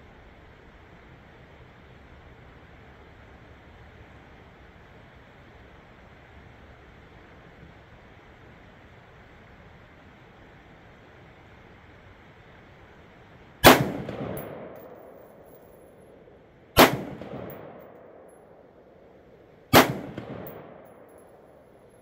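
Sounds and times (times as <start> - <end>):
rifle shots with echo: 13.6 - 15.8, 16.8 - 18.7, 19.7 - 21.8.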